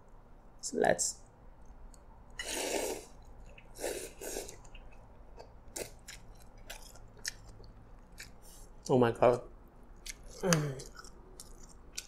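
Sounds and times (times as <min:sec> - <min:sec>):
slurping noodles: 0:02.4 - 0:03.2, 0:03.8 - 0:04.6.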